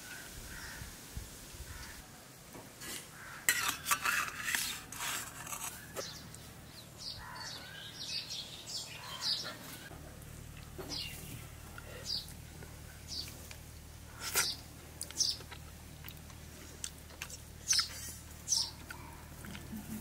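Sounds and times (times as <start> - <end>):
spoons scraping and clinking on plates: 2.8 - 6.2.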